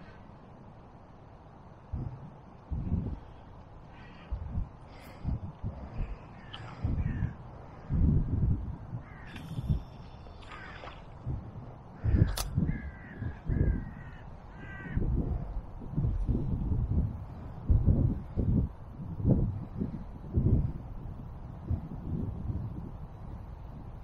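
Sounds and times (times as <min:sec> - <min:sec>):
wind rumbling on microphone: 0:00.0 - 0:24.0
crows cawing: 0:03.8 - 0:04.4, 0:06.0 - 0:07.4, 0:09.0 - 0:11.1, 0:12.0 - 0:15.1
sharp click: 0:12.3 - 0:12.6.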